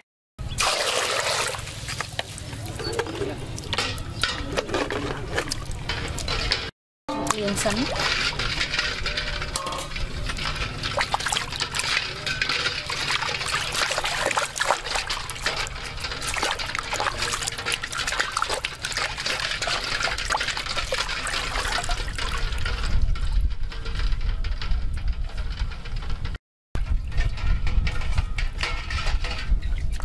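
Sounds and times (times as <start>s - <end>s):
water splashing in metal basin: 0.4s - 23.0s.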